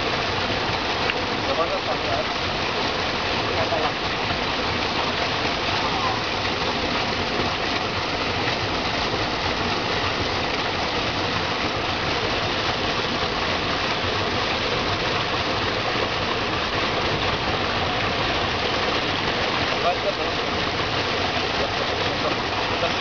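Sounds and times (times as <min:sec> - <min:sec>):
small waterfall splashing: 0:00.0 - 0:23.0.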